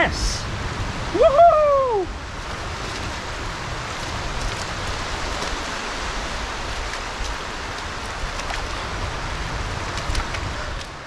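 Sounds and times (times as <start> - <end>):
shallow water washing at shore: 0.0 - 11.0
wind buffeting microphone: 0.0 - 11.0.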